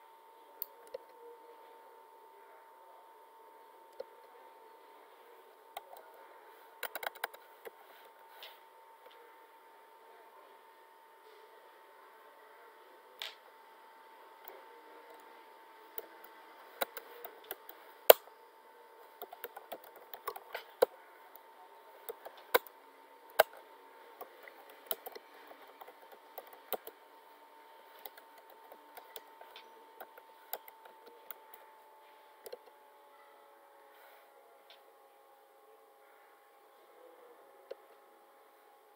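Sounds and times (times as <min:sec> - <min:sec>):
faint steady tone: 0:00.0 - 0:38.9
keyboard key clicks: 0:06.8 - 0:07.4.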